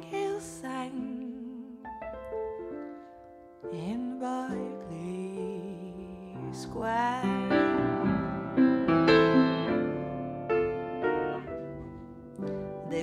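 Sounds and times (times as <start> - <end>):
woman singing with vibrato: 0.0 - 1.8
upright piano chords: 0.0 - 13.0.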